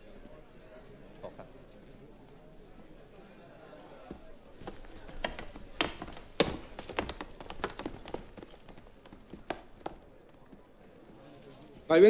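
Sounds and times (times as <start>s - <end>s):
footsteps climbing stairs: 4.1s - 10.6s.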